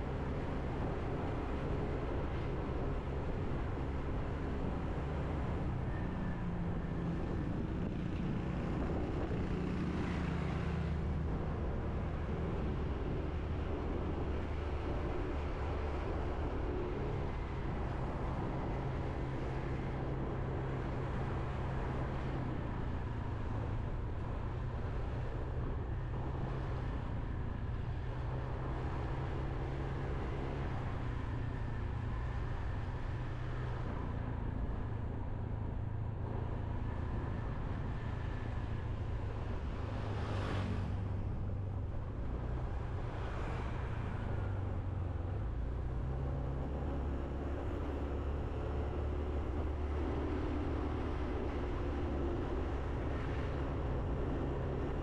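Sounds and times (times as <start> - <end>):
road and wind noise: 0.0 - 55.0.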